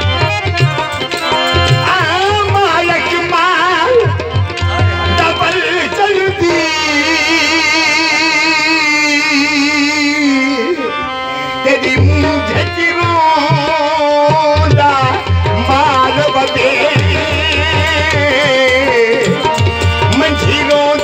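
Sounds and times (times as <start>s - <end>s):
tabla strokes: 0.0s - 6.7s, 11.8s - 21.0s
person singing with vibrato: 0.8s - 21.0s.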